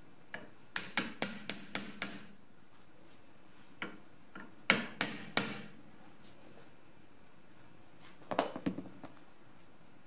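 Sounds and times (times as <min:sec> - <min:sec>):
hammer striking metal punch: 0:00.8 - 0:02.4, 0:04.7 - 0:05.8.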